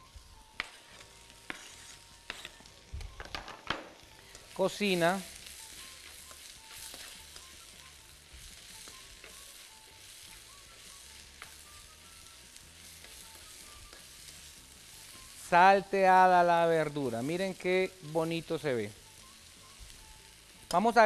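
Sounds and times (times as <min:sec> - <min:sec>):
vegetables sizzling in a pan: 0:00.0 - 0:21.0
spatula scraping a pan: 0:00.6 - 0:02.7, 0:05.7 - 0:07.4.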